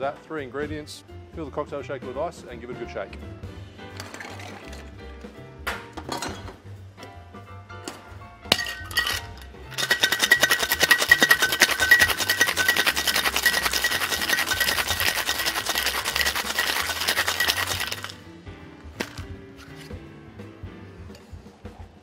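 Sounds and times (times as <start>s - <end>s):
ice rattling in metal cocktail shaker: 4.0s - 4.9s, 8.5s - 18.2s.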